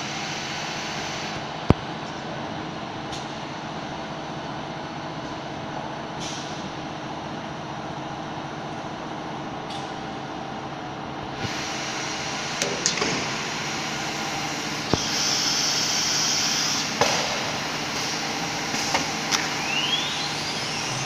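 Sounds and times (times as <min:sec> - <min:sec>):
router machine humming: 0:11.4 - 0:21.0.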